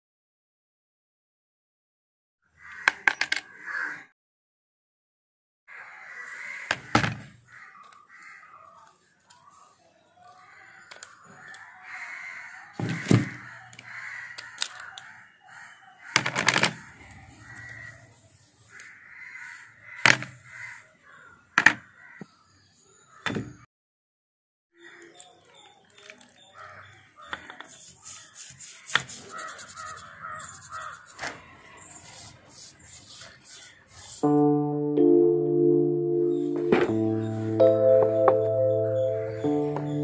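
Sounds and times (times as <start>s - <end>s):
crows cawing: 2.4s - 4.1s, 5.7s - 22.4s, 24.8s - 25.3s, 26.5s - 32.3s.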